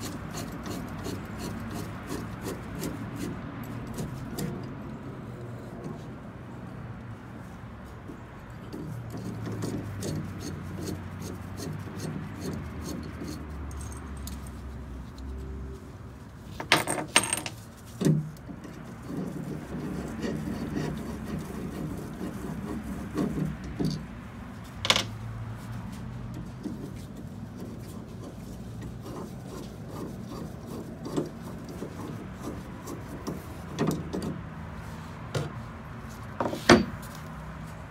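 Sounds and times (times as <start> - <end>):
metal parts and tool clinking: 12.4 - 15.3, 16.5 - 18.8, 24.7 - 25.2.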